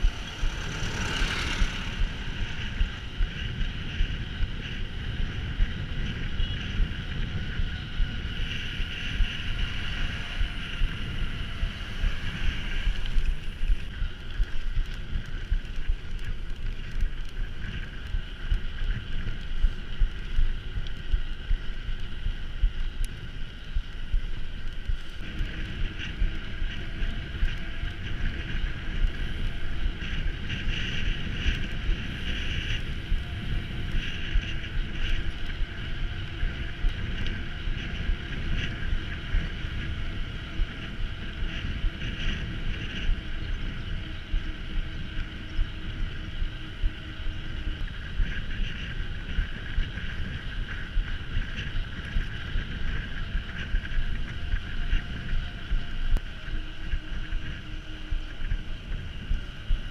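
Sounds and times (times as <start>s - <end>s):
high whir: 0.0s - 14.4s
bike tyres rolling rumble: 0.0s - 59.9s
wind rush on microphone: 0.0s - 59.9s.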